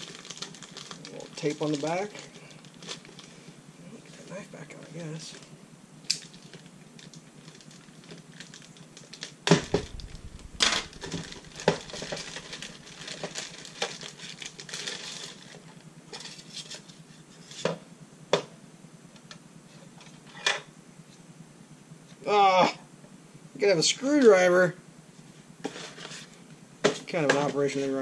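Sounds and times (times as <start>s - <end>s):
plastic bag crinkling: 0.0s - 3.3s, 6.3s - 15.5s.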